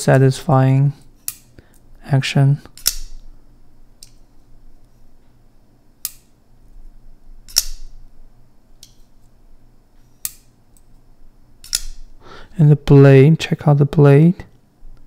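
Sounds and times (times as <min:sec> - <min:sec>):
folding knife clicking open and shut: 0:02.8 - 0:03.1, 0:06.0 - 0:06.3, 0:07.5 - 0:07.9, 0:11.6 - 0:12.0.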